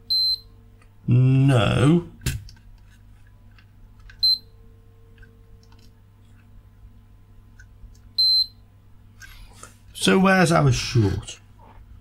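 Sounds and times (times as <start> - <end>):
multimeter short high beep: 0.1 - 0.5, 4.2 - 4.5, 8.2 - 8.6.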